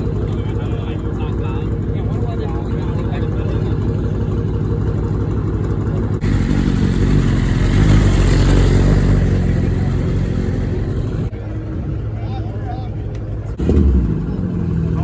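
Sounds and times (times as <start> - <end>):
car engine idling: 0.0 - 15.0
motorcycle engine pulling away: 5.2 - 11.3.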